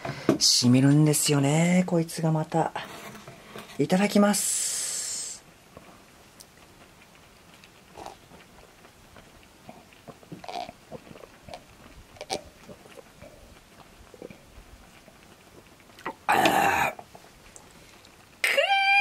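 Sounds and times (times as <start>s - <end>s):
person chewing: 6.4s - 18.2s.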